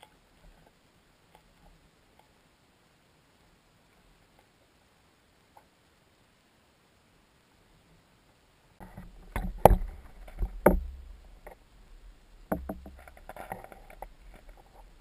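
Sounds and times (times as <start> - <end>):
hollow knocks underwater: 8.8 - 11.6, 12.4 - 15.0
low underwater rumble: 8.8 - 15.0.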